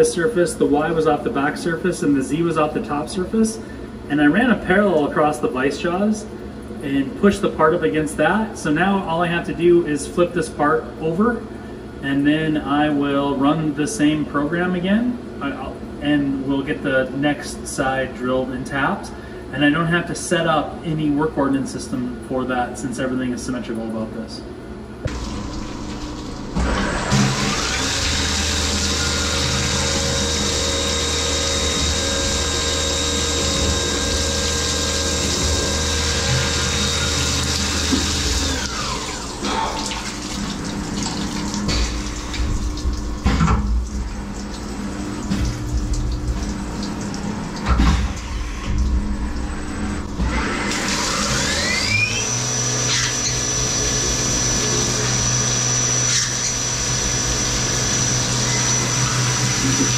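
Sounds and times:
mill spindle whine: 0:24.7 - 0:59.9
coolant splashing: 0:25.1 - 0:52.0.

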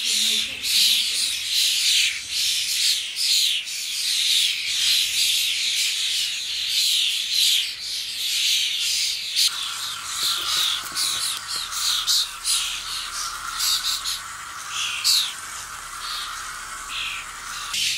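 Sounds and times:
young starlings begging calls: 0:00.0 - 0:17.9.

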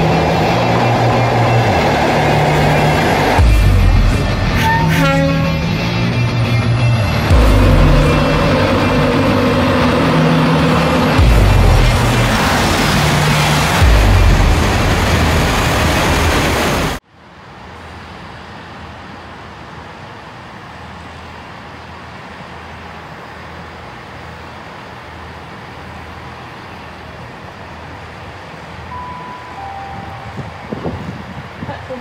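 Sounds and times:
loud rush of sound: 0:00.0 - 0:32.0
railway platform hum and rumble: 0:00.0 - 0:32.0
two-note falling chime: 0:28.9 - 0:30.7.

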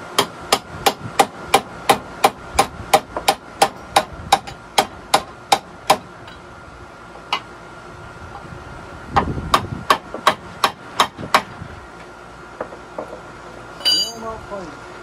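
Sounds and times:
hammer striking metal: 0:13.8 - 0:14.4.

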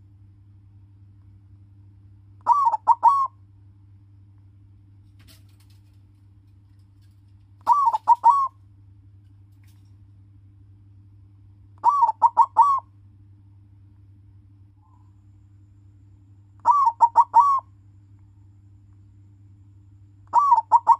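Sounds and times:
dove cooing: 0:02.4 - 0:03.3, 0:07.6 - 0:08.6, 0:11.8 - 0:12.8, 0:16.6 - 0:17.7, 0:20.3 - 0:20.9.

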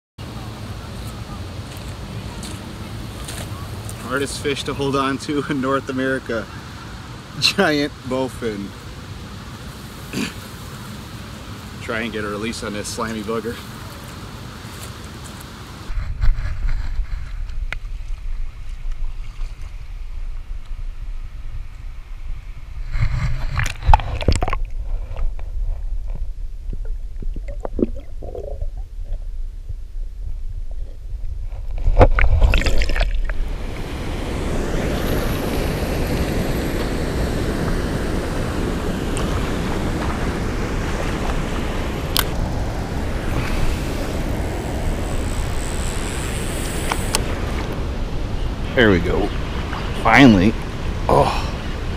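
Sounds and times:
muffled low rumble: 0:15.9 - 0:48.5
splashing in shallow water: 0:16.6 - 0:20.7, 0:31.8 - 0:34.0
water pouring below a spillway: 0:32.2 - 0:33.9.

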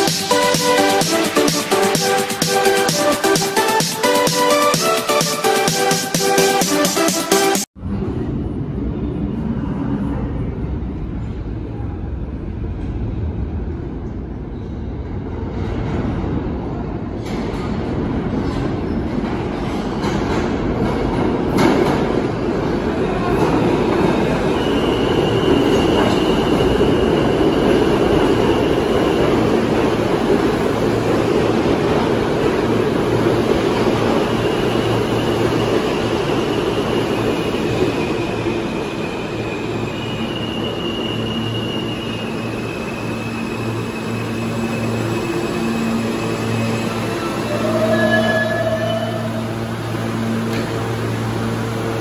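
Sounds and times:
low train hum: 0:07.8 - 0:52.0
train wheels rumbling on rails: 0:07.8 - 0:52.0
high wheel and brake squeals: 0:24.3 - 0:29.5, 0:33.9 - 0:50.4.

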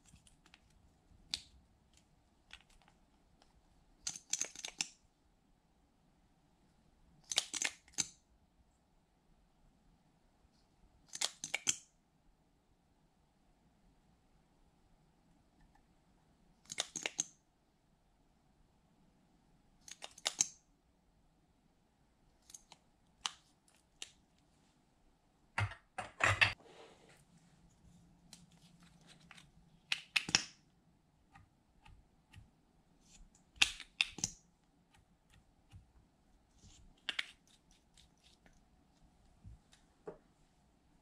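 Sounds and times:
plastic tubes and caps clicking: 0:01.3 - 0:05.0, 0:16.6 - 0:17.4, 0:19.8 - 0:20.6, 0:29.2 - 0:30.6, 0:33.3 - 0:34.4.

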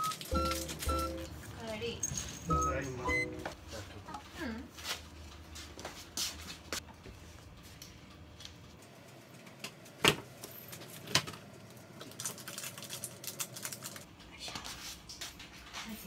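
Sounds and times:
footsteps in slippers: 0:04.2 - 0:06.8.

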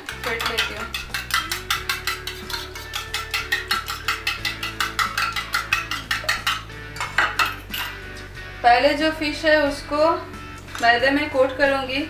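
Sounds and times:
spoon clinking in metal bowl: 0:00.0 - 0:08.0.

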